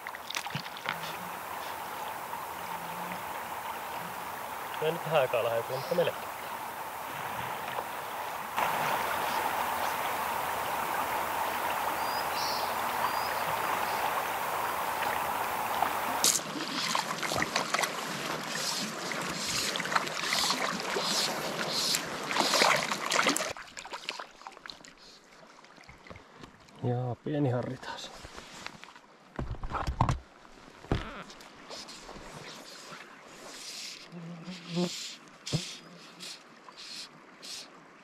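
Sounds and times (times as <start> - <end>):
splashes and knocks: 0.0 - 1.2, 16.2 - 24.9
river rapids rushing: 0.9 - 23.1.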